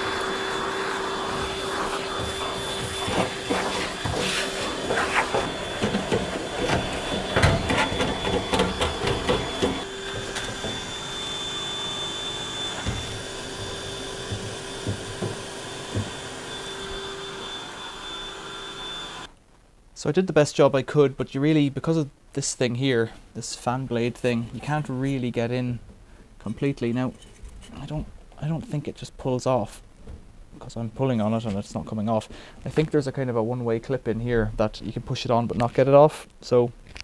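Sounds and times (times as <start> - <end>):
vacuum cleaner running: 0.0 - 19.3.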